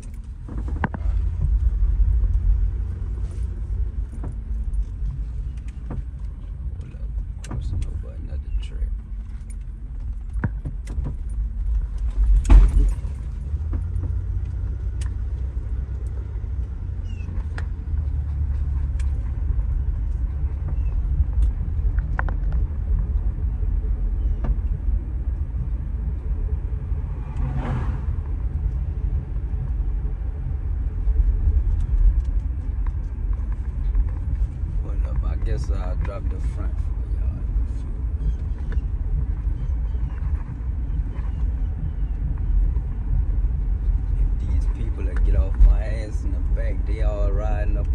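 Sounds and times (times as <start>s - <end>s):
car knocks and rattles: 0.0s - 47.1s
road and engine rumble: 0.0s - 47.9s
loud thump: 12.3s - 13.1s.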